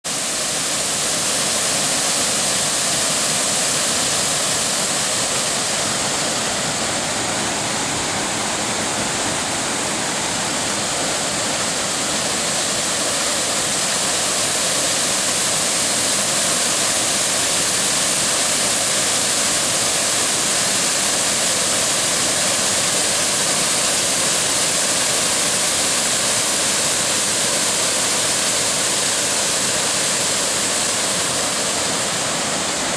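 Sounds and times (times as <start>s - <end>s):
waterfall rushing: 0.0s - 32.9s.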